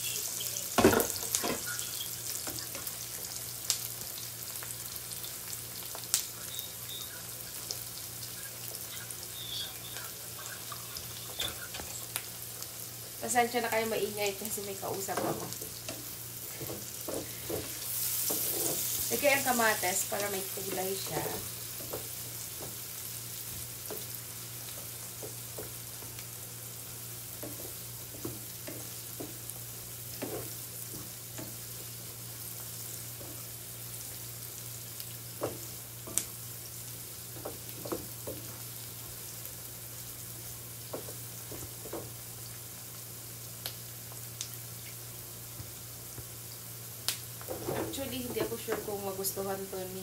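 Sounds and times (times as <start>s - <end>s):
vegetables sizzling in a pan: 0.0s - 50.0s
spatula scraping and tapping pan: 15.1s - 19.5s, 20.6s - 26.2s, 27.4s - 29.5s, 30.1s - 31.6s, 37.3s - 38.6s.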